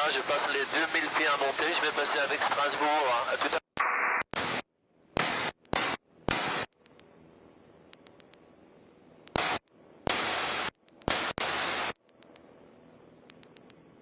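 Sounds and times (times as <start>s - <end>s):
faint hum: 0.0s - 14.0s
radio static hiss bursts: 0.0s - 14.0s.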